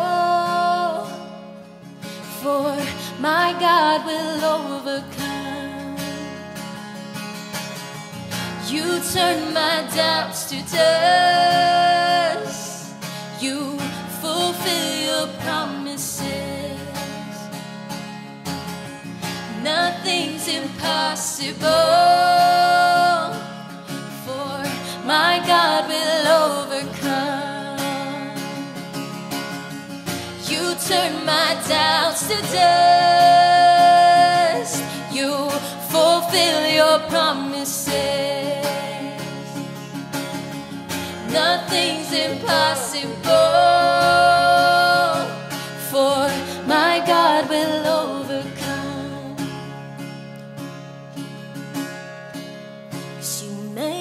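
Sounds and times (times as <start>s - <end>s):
woman singing worship song: 0.0s - 1.3s, 2.3s - 6.4s, 8.6s - 17.4s, 19.5s - 28.5s, 30.4s - 39.6s, 41.0s - 49.6s, 53.2s - 54.0s
strummed acoustic guitar: 0.0s - 54.0s.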